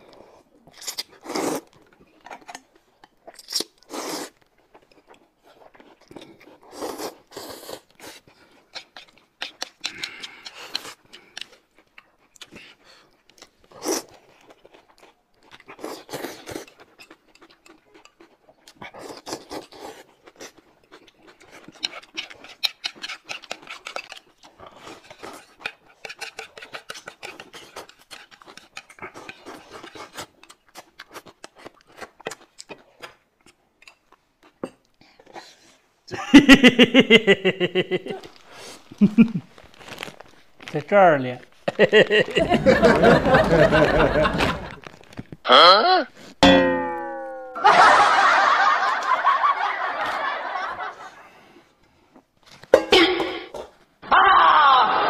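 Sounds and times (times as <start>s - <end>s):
slurping and chewing noodles: 0.0s - 35.9s, 38.1s - 40.7s.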